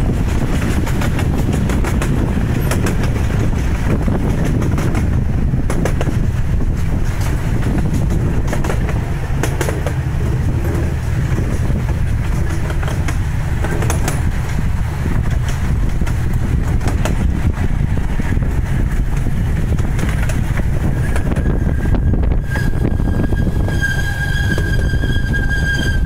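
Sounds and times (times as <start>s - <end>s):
miniature train rumbling: 0.0s - 26.0s
wheels clicking and knocking: 0.0s - 26.0s.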